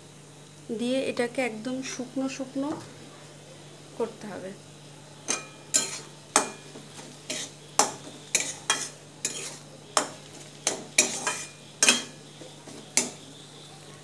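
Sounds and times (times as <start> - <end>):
metal spatula scraping a pan: 5.3 - 13.2.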